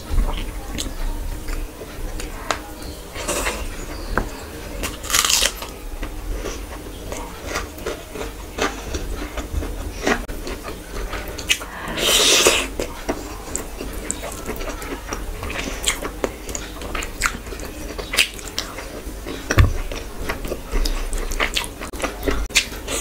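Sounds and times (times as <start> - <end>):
loud noisy sound: 11.5 - 12.9
chewing and wet mouth clicks: 13.5 - 19.4.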